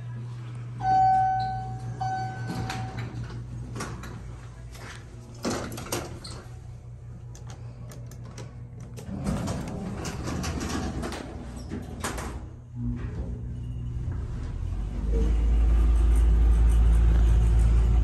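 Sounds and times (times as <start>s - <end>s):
low hum: 0.0s - 5.3s, 6.5s - 18.0s
elevator chime dings: 0.8s - 3.4s
elevator doors sliding open: 0.8s - 7.0s, 8.2s - 16.1s.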